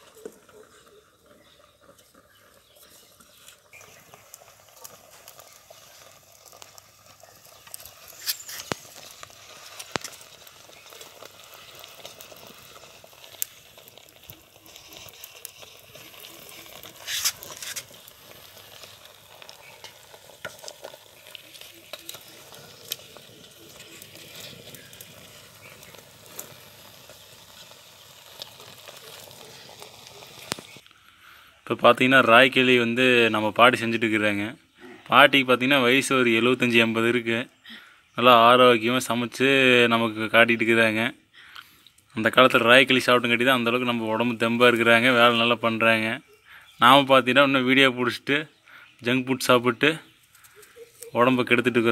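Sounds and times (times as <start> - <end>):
wooden stick stirring porridge: 0.0 - 26.6
sizzling hiss: 0.0 - 51.9.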